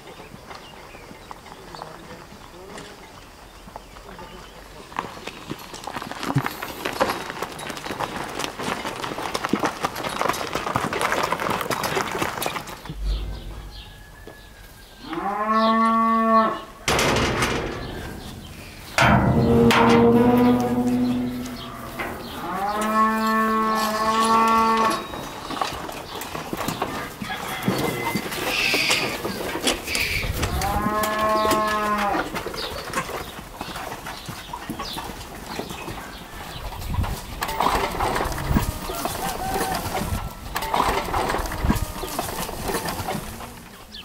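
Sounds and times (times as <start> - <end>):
cattle mooing: 15.0 - 16.7, 19.0 - 25.3, 30.5 - 32.3.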